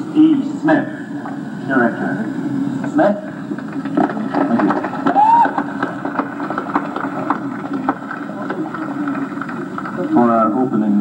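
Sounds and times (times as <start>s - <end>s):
audience murmuring: 1.4s - 11.0s
audience clapping: 3.6s - 10.7s.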